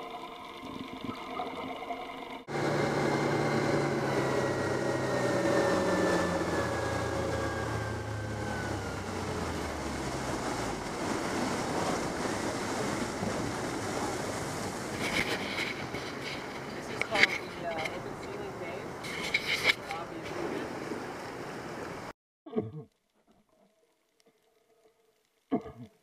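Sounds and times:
sea water rushing around hull: 0.0 - 22.1
boat engine running: 1.0 - 22.1
wind on microphone: 3.4 - 22.1.

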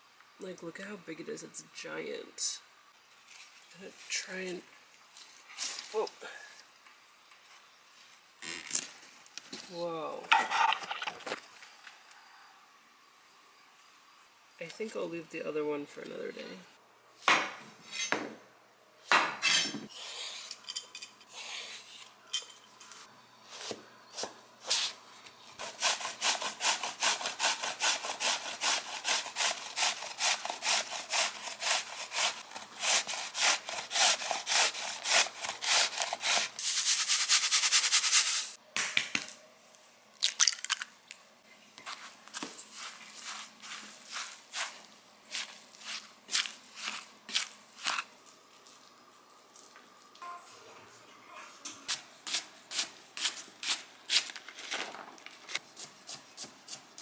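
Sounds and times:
zucchini scraping on grater: 25.6 - 38.4.

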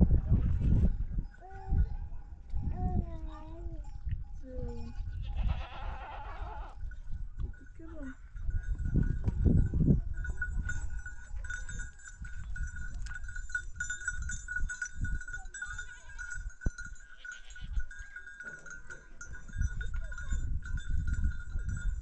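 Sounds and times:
goat and sheep bells ringing: 0.0 - 22.0.

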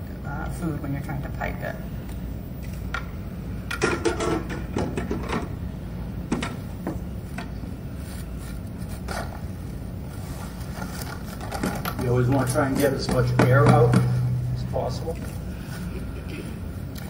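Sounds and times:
steady low hum: 0.0 - 17.0
handling rustles and knocks: 10.1 - 16.0.

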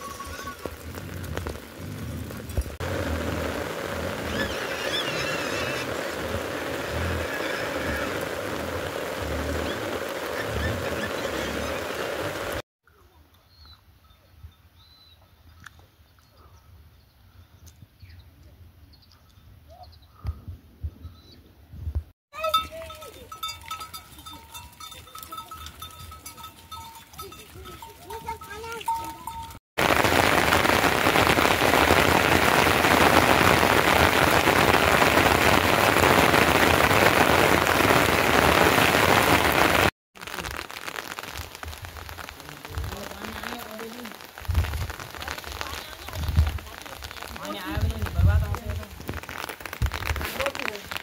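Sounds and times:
goats bleating: 0.0 - 0.8
hooves clattering on stones: 0.0 - 2.9, 22.4 - 29.6
steady rain: 0.0 - 12.6, 22.4 - 51.0
piglets squealing: 4.3 - 5.9.

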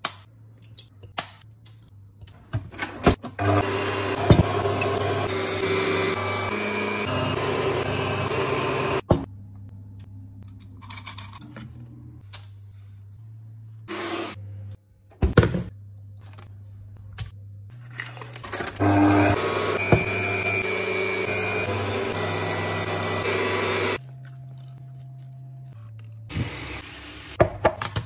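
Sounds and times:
stand mixer whirring: 3.4 - 9.0, 18.8 - 24.0.

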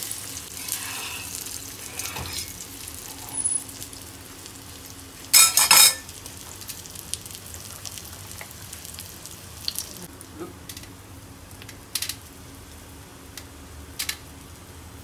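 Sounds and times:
omelet sizzling in pan: 0.0 - 14.8
spatula scraping pan: 0.6 - 2.5.

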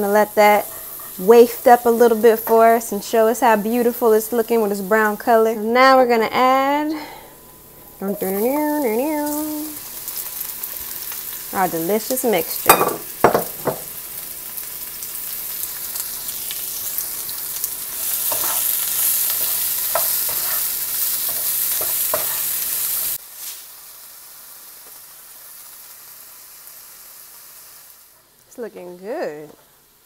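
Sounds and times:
vegetables sizzling in a frying pan: 0.0 - 6.8, 7.6 - 30.0
spatula scraping a pan: 0.4 - 1.8, 18.0 - 22.7.

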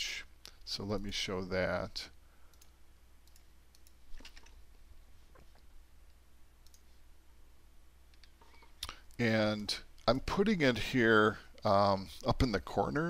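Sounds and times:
low electrical hum: 0.0 - 13.0
computer mouse clicks: 2.5 - 4.6, 6.6 - 6.9.

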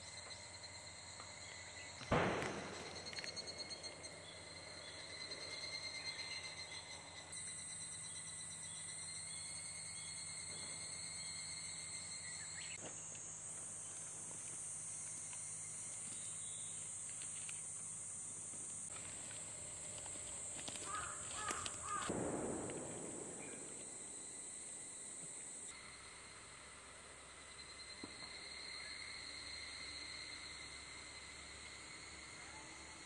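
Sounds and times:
high-pitched insect drone: 0.0 - 22.3, 23.4 - 33.0
rustle: 7.4 - 33.0.

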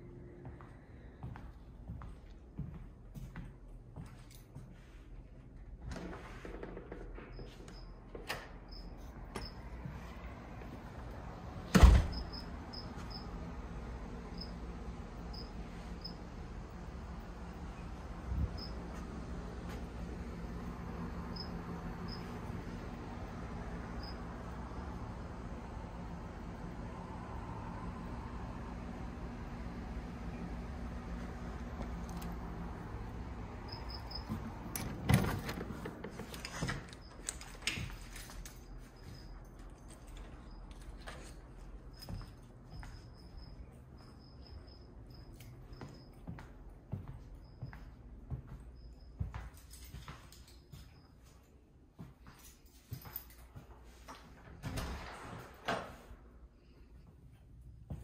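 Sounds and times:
footsteps on a hard floor: 0.4 - 5.1, 45.8 - 51.0
door opening with a thud: 11.6 - 12.5, 33.7 - 38.1, 54.4 - 56.1.

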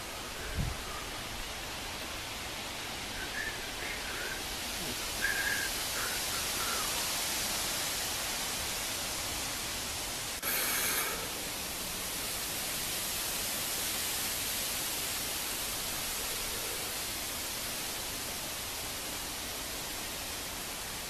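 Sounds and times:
wind hiss: 0.0 - 21.0
faint bird chirps: 3.1 - 7.0
burst of noise: 10.4 - 11.5.

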